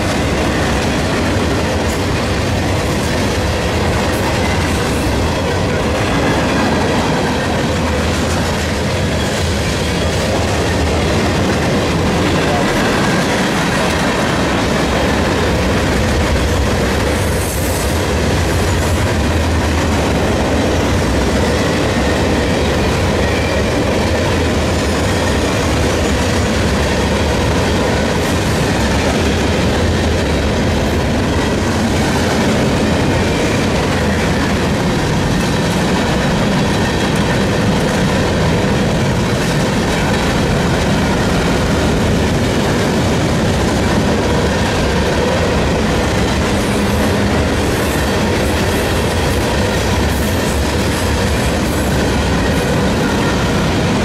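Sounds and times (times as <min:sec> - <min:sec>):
steel wheels rumbling on rail: 0:00.0 - 0:54.0.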